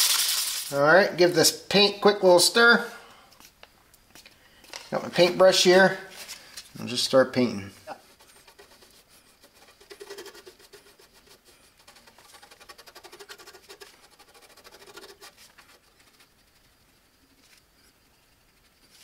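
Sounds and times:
brush scratching on metal: 7.9s - 19.0s.

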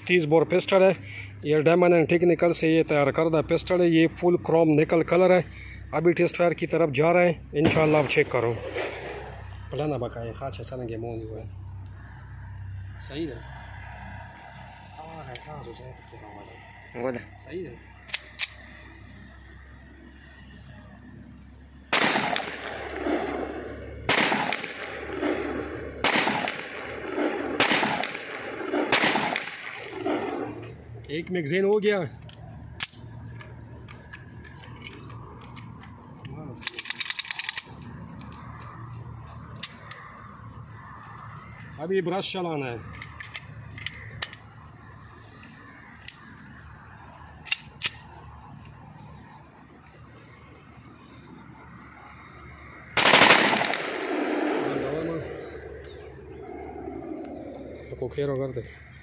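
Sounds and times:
pistol shots with rolling echo: 7.6s - 9.7s, 21.8s - 30.7s, 52.9s - 57.8s.

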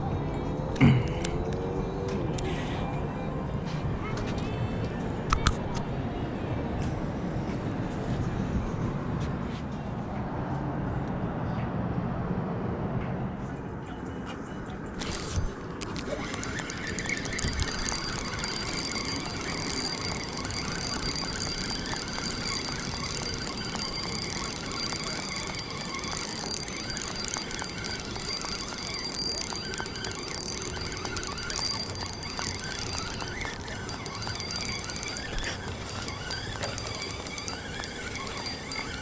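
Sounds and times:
constant rumbling noise: 0.0s - 39.0s
high-pitched squeal: 15.0s - 39.0s.

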